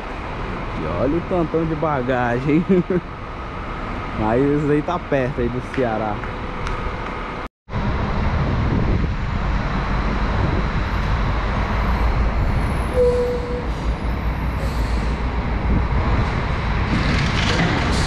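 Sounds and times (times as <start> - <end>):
bus engine rumbling: 0.0 - 18.0
short beep: 12.9 - 13.8.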